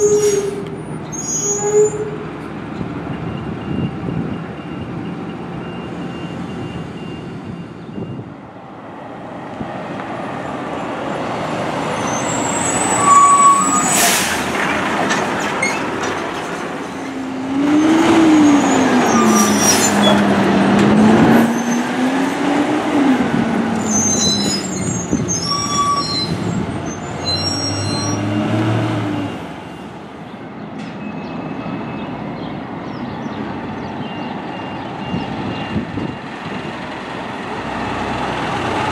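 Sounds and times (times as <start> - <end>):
brakes squealing: 0.0 - 2.4, 11.9 - 30.0
garbage truck engines rumbling: 0.0 - 38.9.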